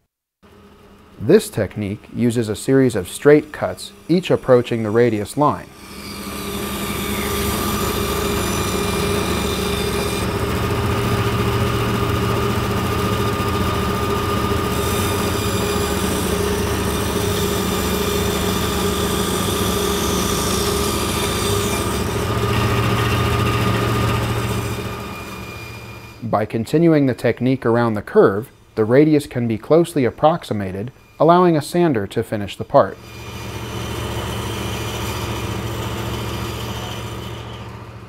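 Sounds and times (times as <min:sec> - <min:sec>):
bandsaw motor hum: 0:00.4 - 0:26.3, 0:32.8 - 0:38.0
saw blade cutting plywood: 0:02.4 - 0:26.2, 0:33.0 - 0:38.0.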